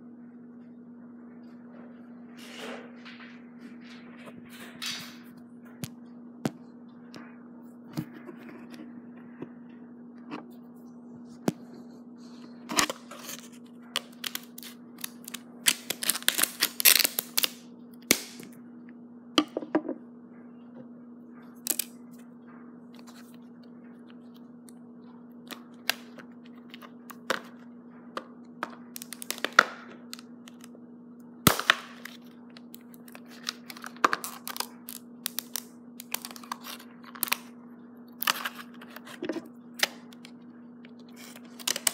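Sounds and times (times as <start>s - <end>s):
plastic packaging crackling: 12.7s - 18.4s, 28.8s - 30.7s, 31.4s - 37.5s, 38.2s - 40.4s, 41.0s - 41.9s.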